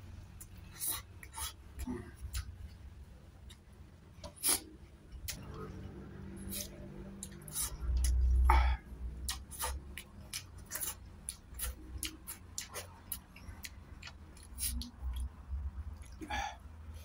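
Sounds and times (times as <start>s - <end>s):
wet chewing and lip-smacking: 6.4s - 8.5s, 9.1s - 16.3s.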